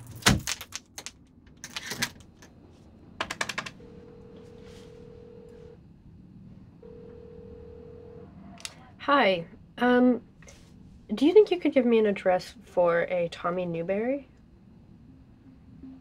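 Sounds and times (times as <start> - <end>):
telephone ringback tone: 3.8 - 5.8, 6.8 - 8.4.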